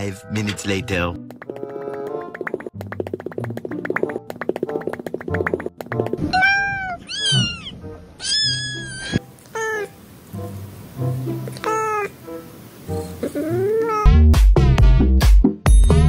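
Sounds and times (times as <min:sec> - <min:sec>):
cat meowing: 0:06.2 - 0:10.0, 0:11.6 - 0:12.2, 0:13.2 - 0:14.2
background music with bass: 0:14.1 - 0:16.0.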